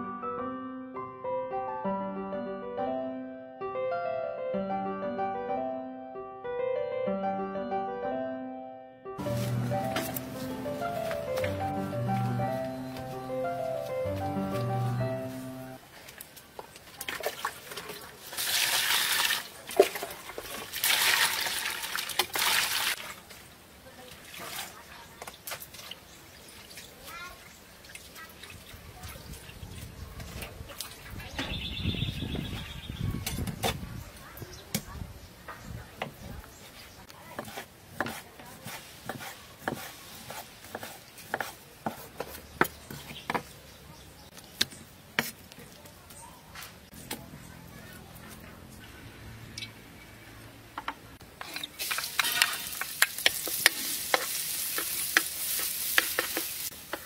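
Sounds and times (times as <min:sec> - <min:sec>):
water splashing in a basin: 0:16.8 - 0:31.2.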